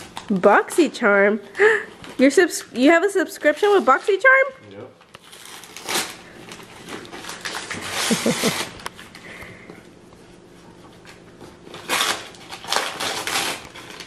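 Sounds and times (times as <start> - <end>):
wrapping paper crinkling: 5.0 - 9.3, 11.0 - 14.0
person chuckling: 7.9 - 8.8.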